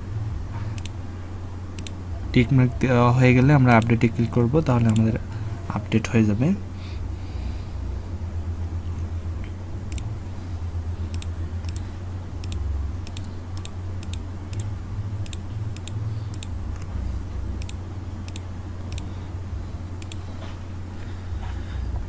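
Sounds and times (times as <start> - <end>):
steady low hum: 0.0 - 22.0
computer mouse clicking: 0.8 - 1.0, 1.8 - 2.0, 4.9 - 5.1, 11.1 - 16.9, 17.6 - 19.1, 20.0 - 20.2.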